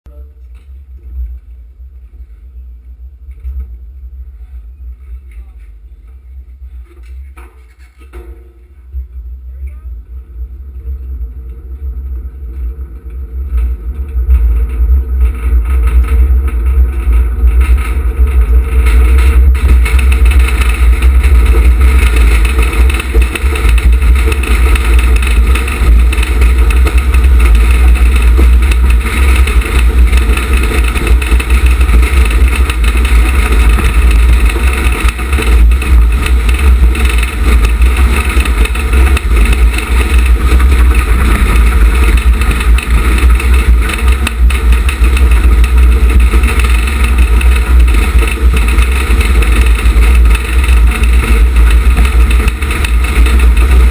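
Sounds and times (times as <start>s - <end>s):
wheels rumbling on concrete: 0.1s - 53.9s
wind buffeting on microphone: 11.1s - 53.9s.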